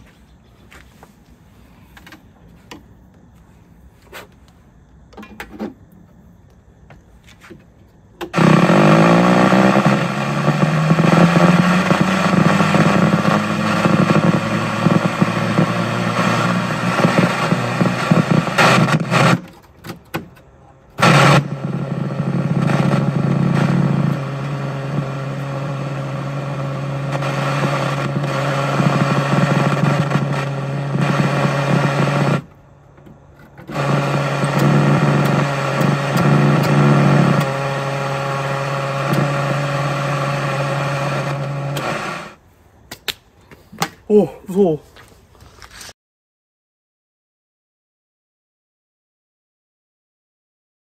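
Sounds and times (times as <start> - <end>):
television harsh buzz: 8.3 - 19.4, 21.0 - 32.6, 33.7 - 42.4.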